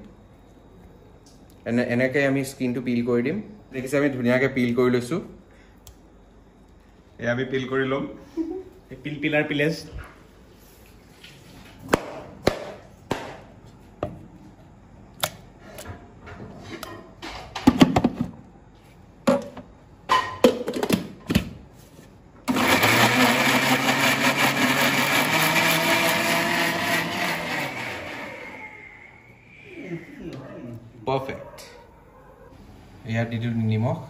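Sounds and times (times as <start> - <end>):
knife chopping on plastic board: 11.9 - 13.4
electric mixer grinder running: 22.5 - 28.7.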